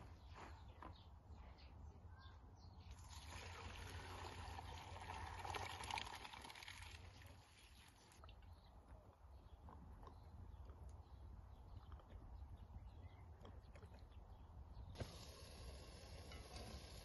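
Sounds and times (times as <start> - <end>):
water pouring into a metal colander: 3.0 - 8.2.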